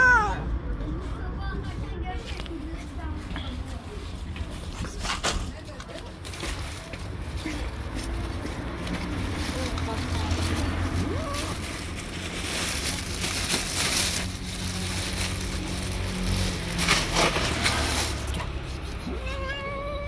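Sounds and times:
street traffic rumble: 0.0 - 20.0
cat meowing: 19.0 - 20.0.

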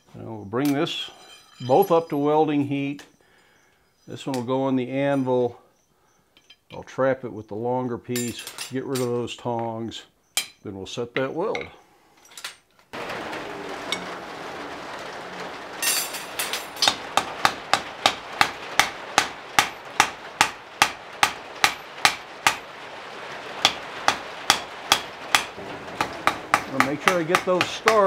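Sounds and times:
hot steel hissing: 15.8 - 28.0.

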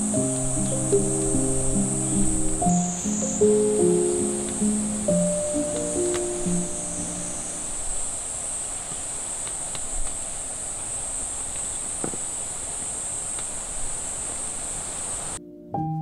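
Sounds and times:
insects droning: 0.0 - 15.4
outdoor hiss: 0.0 - 15.4
faint ticks: 2.6 - 7.6, 8.7 - 14.4.

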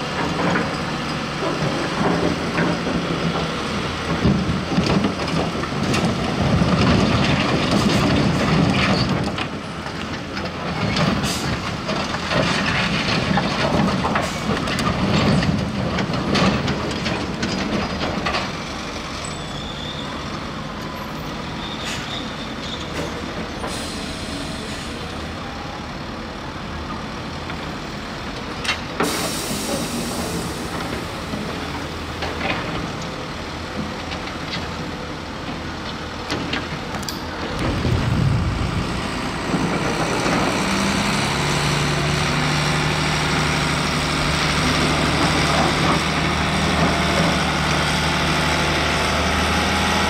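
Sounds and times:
truck engine running under load: 0.0 - 50.0
rocks rumbling and clattering: 4.1 - 18.6, 37.5 - 41.4.

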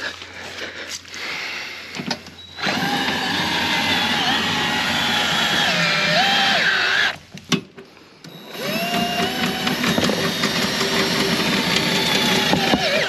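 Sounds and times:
electric motor whining: 2.6 - 7.3, 8.2 - 13.0.

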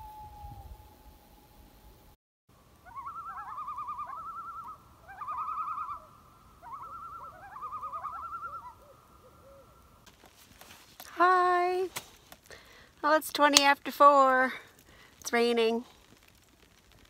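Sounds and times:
loon tremolo calls: 2.8 - 9.8.

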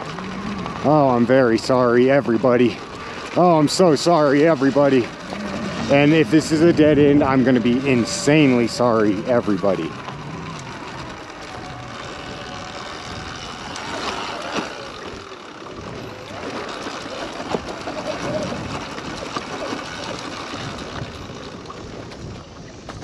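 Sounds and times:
tyres and wind rushing: 0.0 - 16.8.

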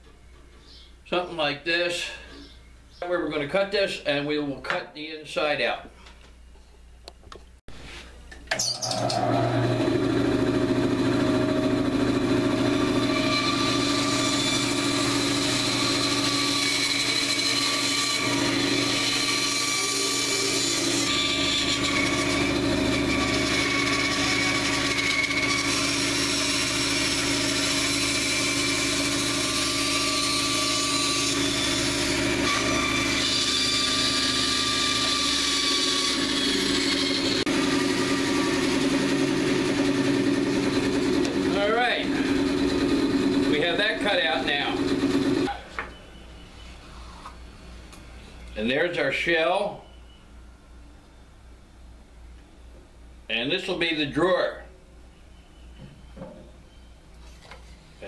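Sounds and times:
bandsaw cutting log: 8.9 - 45.6.

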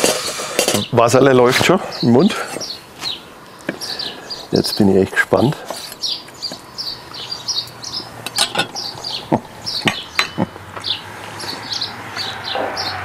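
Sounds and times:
small bird chirping: 5.8 - 13.0.

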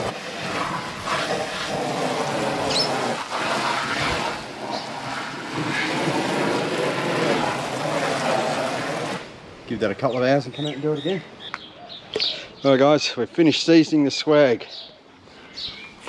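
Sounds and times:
hose water spraying onto canvas: 0.0 - 9.6.

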